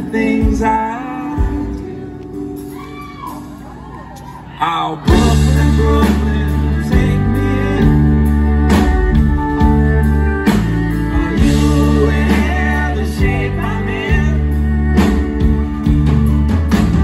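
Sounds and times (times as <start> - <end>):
man singing lead vocal: 0.0 - 2.5, 4.6 - 9.4, 10.8 - 15.1
live folk-rock band playing: 0.0 - 17.0.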